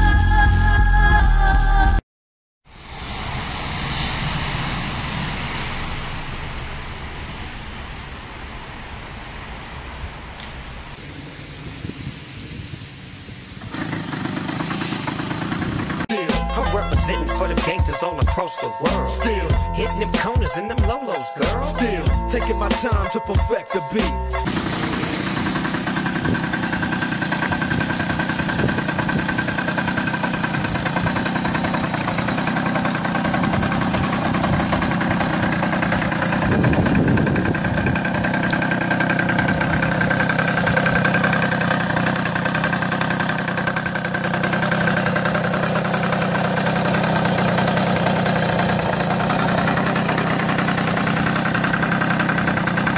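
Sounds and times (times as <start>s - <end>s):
moped engine idling: 11.0s - 18.0s, 24.4s - 52.9s.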